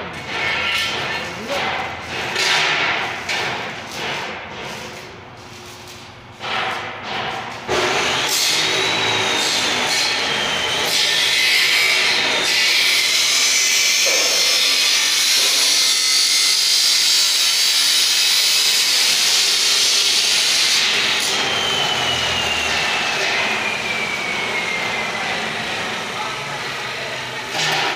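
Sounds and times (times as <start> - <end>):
angle grinder cutting steel: 7.7 - 27.9.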